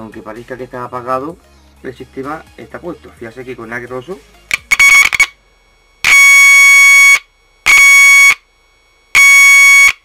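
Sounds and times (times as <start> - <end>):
harsh buzzing test tone: 2.2 - 10.0.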